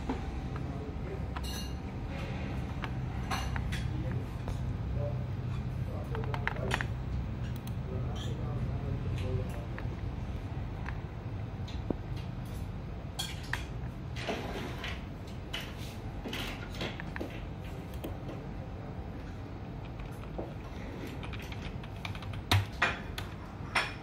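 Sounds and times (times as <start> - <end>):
low background hum: 0.0 - 24.0
typing on keyboard: 6.1 - 6.9, 19.7 - 23.4
mouse clicking: 6.1 - 7.8.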